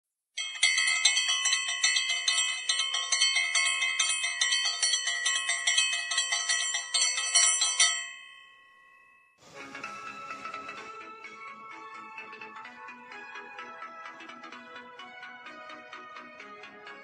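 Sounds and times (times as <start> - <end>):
bell-like chimes struck rapidly: 0.4 - 10.8.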